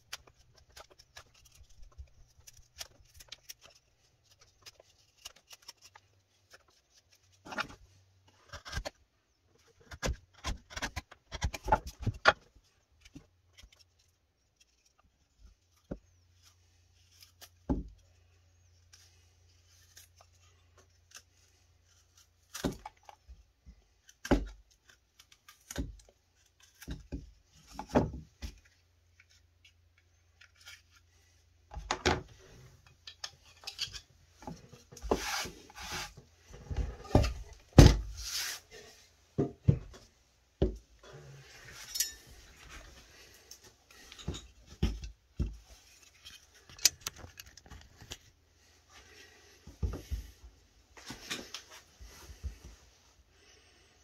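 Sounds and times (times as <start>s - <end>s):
knife shaving wood: 0.0s - 31.5s, 34.4s - 39.1s.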